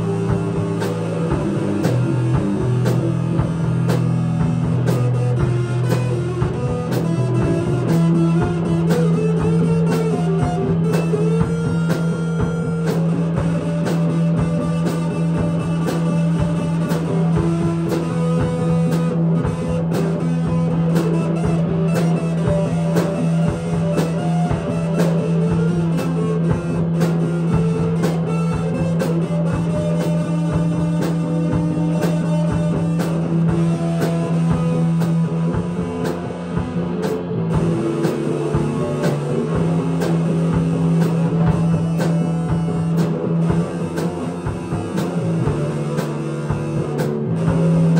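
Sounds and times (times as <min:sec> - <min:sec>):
rock band playing: 0:00.0 - 0:47.9.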